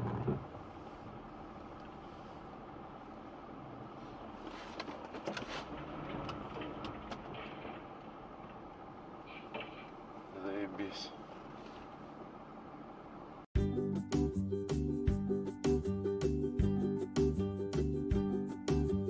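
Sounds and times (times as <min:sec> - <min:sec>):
car cabin engine and tyre noise: 0:00.0 - 0:13.5.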